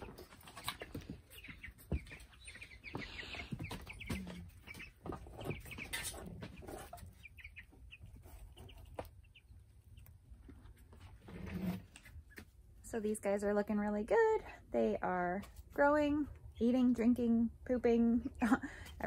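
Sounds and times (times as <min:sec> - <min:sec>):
chicks cheeping: 0:00.0 - 0:12.6.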